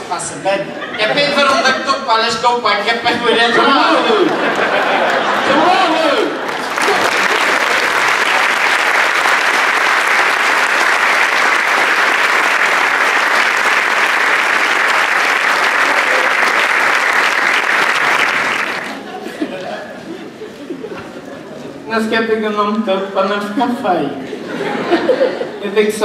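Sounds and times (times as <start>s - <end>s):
audience applause: 4.1s - 19.1s.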